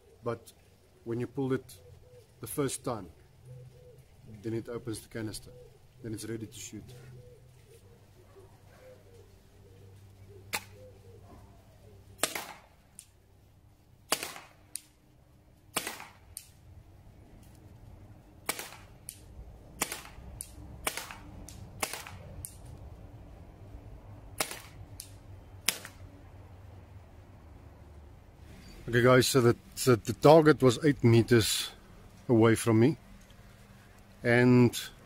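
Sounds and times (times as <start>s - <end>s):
air pistol shots popping: 10.5s - 10.8s, 12.2s - 13.1s, 14.1s - 15.0s, 15.7s - 16.6s, 18.4s - 22.6s, 24.4s - 26.0s.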